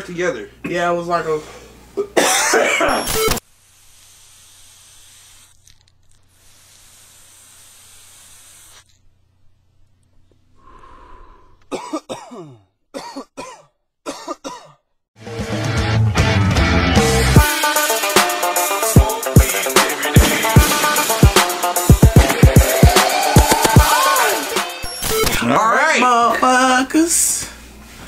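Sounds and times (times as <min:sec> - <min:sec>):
man coughing: 0:02.0 - 0:03.1, 0:11.7 - 0:14.8.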